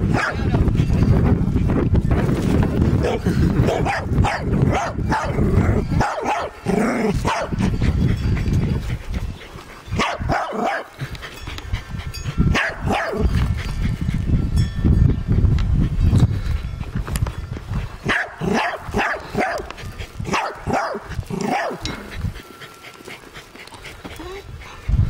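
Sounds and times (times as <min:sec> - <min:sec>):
dog barking: 0:00.1 - 0:00.5, 0:03.0 - 0:06.6, 0:07.2 - 0:07.6, 0:10.0 - 0:10.9, 0:12.5 - 0:13.3, 0:18.1 - 0:19.7, 0:20.3 - 0:21.8.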